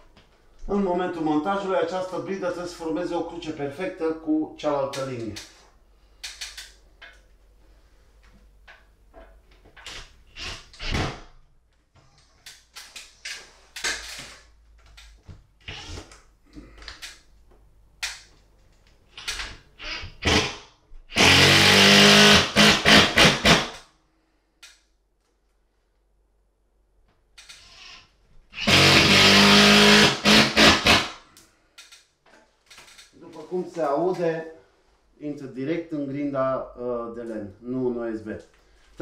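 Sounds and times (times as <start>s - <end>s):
impact driver driving a screw: 9.8s - 11.2s, 19.2s - 23.8s, 28.6s - 31.2s.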